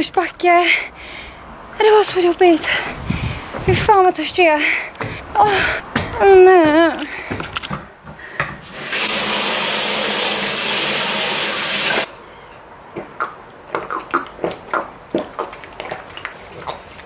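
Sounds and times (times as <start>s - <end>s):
kitchen tap running: 8.6s - 12.1s.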